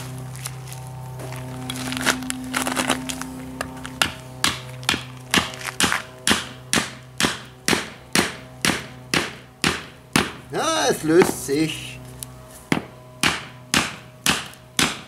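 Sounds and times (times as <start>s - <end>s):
hatchet hammering steel chisel: 4.0s - 10.4s, 13.2s - 15.0s.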